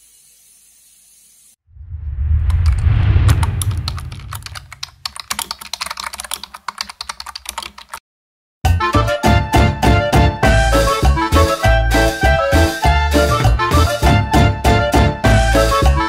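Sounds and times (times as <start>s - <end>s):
low rushing rumble: 1.7s - 5.0s
keyboard typing clicks: 3.3s - 8.0s
music: 8.6s - 16.0s.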